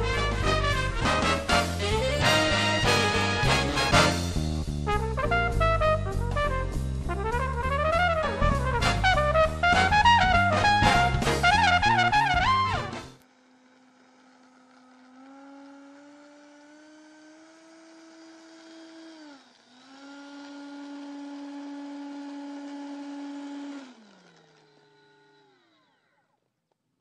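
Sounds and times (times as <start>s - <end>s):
mechanical whine: 9.9s - 26.4s.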